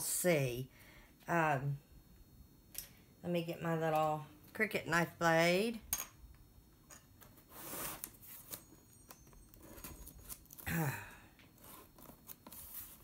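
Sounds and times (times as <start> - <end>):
woman humming: 10.6 - 11.4.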